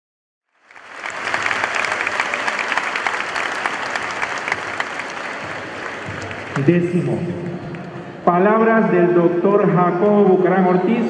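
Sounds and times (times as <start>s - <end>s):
audience applauding: 0.5s - 8.0s.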